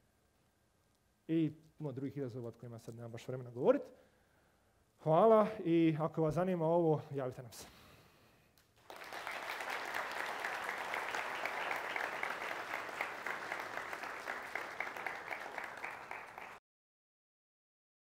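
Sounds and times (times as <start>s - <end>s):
audience applauding: 8.8s - 16.6s.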